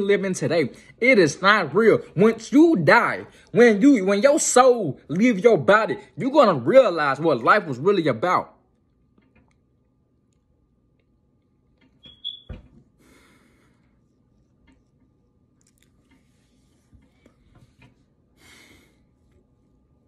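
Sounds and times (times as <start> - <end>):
person breathing: 13.0 - 14.0, 18.3 - 19.3.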